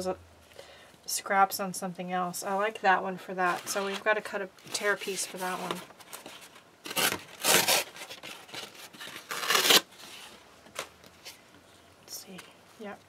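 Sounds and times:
paper tearing by hand: 6.9s - 9.9s.

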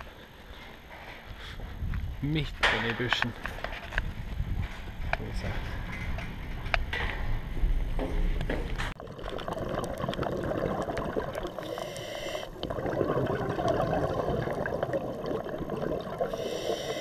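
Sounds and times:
underwater bubbling of exhaled air: 9.0s - 17.0s
breath hiss through regulator: 11.6s - 12.6s, 16.2s - 17.0s.

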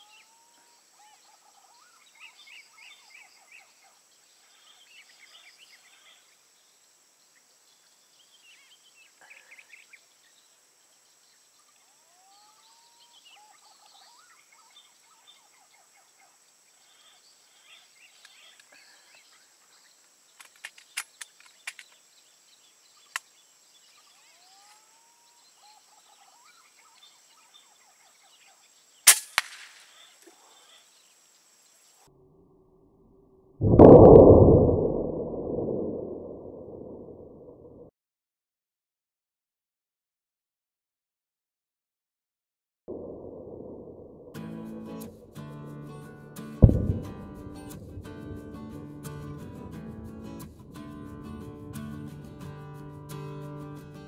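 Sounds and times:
air rifle firing: 29.1s - 29.8s, 46.6s - 48.4s.

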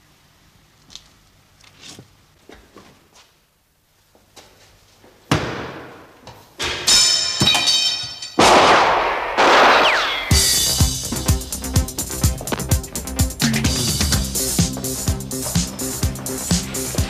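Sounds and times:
loud bangs and crashes: 6.6s - 11.5s.

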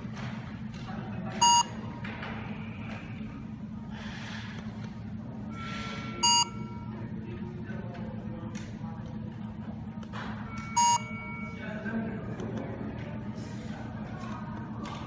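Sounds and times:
short electronic scanner beeps: 1.4s - 1.8s, 5.6s - 6.9s, 10.7s - 11.4s.

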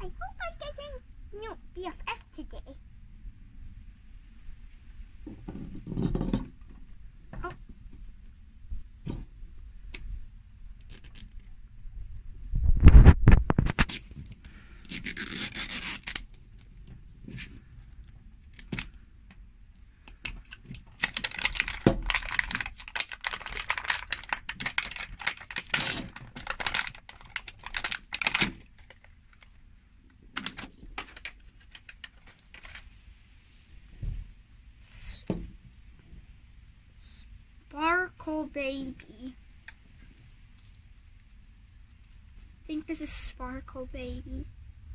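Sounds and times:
plastic wrap crinkling and tearing: 13.0s - 16.6s, 20.4s - 29.6s, 30.3s - 32.9s.

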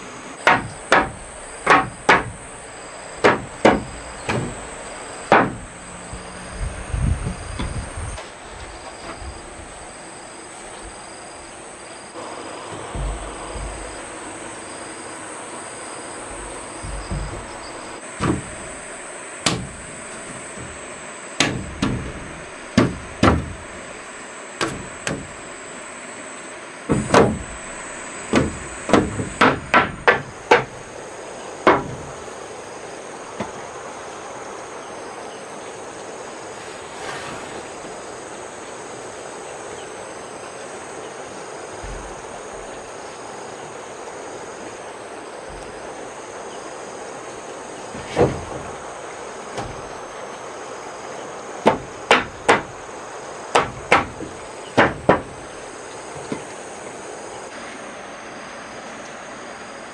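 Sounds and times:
hammer nailing wooden boards: 0.4s - 6.3s, 12.7s - 14.2s, 16.1s - 18.8s, 19.4s - 23.9s, 24.6s - 25.5s, 26.9s - 30.9s, 31.6s - 32.3s, 47.9s - 48.8s, 49.5s - 50.0s, 51.6s - 52.9s, 53.5s - 56.5s.

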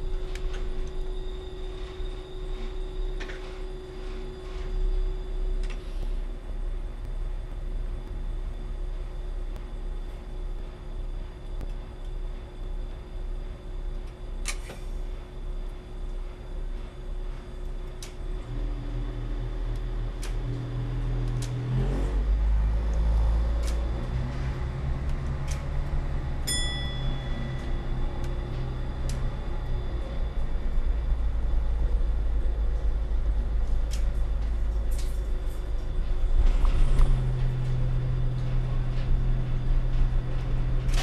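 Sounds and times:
diesel railcar engine rumble: 15.0s - 41.0s
scattered clicks: 19.6s - 21.6s, 25.0s - 26.0s.

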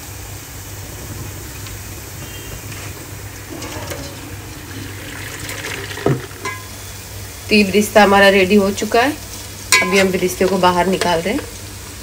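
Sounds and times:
bowl scooping from pot: 2.8s - 6.8s
water poured into strainer: 3.2s - 6.6s.

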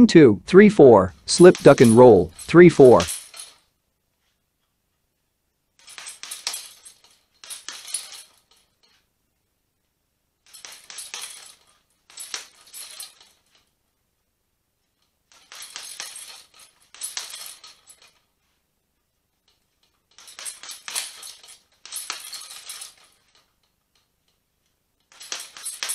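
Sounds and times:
metal chain jangling: 1.2s - 3.7s, 5.8s - 9.0s, 10.4s - 13.7s, 15.3s - 18.3s, 19.5s - 24.1s, 25.0s - 25.9s.

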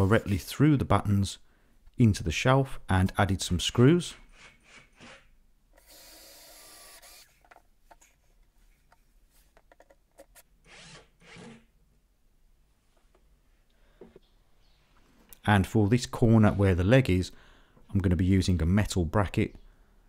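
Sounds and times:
cordless drill running: 5.8s - 7.4s
small clicks and handling knocks: 7.4s - 10.4s.

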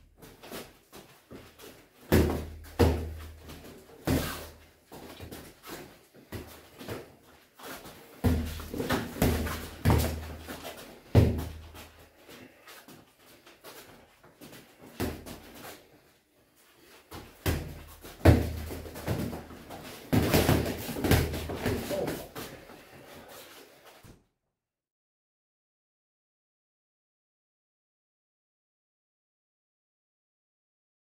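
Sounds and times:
gloved punches landing: 20.1s - 21.9s.

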